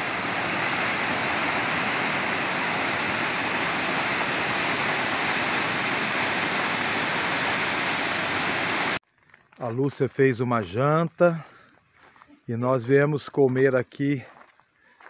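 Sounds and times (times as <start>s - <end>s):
waterfalls pouring onto rocks: 0.0s - 9.0s.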